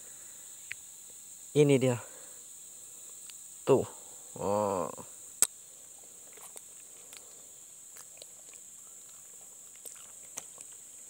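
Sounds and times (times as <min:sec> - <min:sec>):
high-pitched insect drone: 0:00.0 - 0:11.0.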